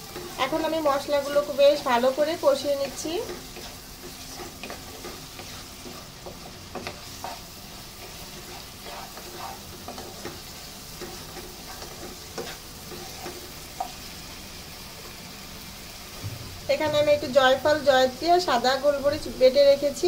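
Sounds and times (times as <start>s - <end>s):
spatula knocking and scraping pan: 0.0s - 14.1s
paste sizzling in oil: 0.0s - 20.0s.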